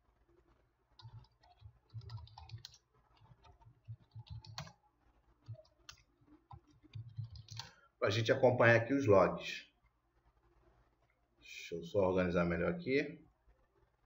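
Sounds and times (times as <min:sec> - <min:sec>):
keyboard typing: 0:01.0 - 0:04.8, 0:05.4 - 0:07.8.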